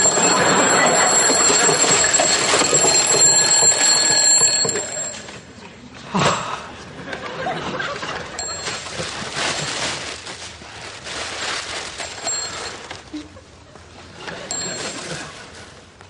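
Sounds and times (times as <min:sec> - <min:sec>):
wrapping paper crinkling: 0:08.5 - 0:12.9.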